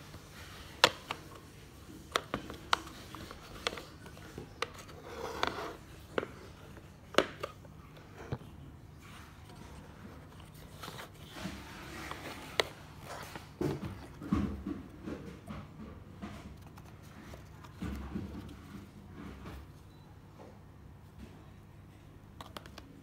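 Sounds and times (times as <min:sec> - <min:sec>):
plastic clicks and taps: 0:22.4 - 0:22.9.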